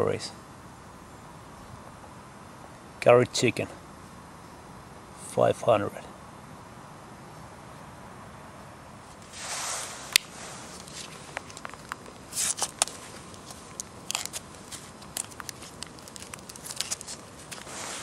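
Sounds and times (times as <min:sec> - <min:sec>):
plastic pouch rustling and crinkling: 0:10.1 - 0:18.0.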